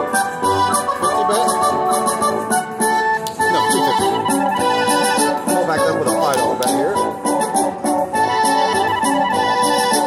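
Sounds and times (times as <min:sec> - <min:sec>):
slot machine win jingle: 0:03.4 - 0:07.1.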